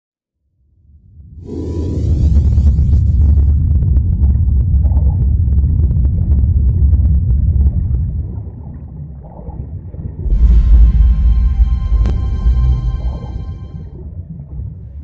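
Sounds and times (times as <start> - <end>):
deep underwater rumble: 0.9 - 15.0.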